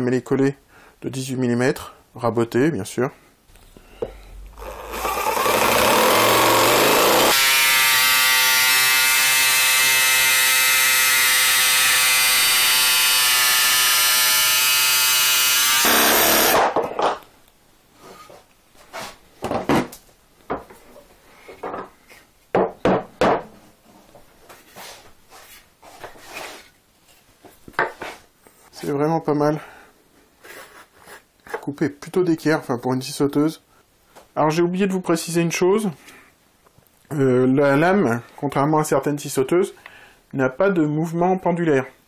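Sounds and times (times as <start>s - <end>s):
cordless saw cutting wood: 4.4s - 16.6s.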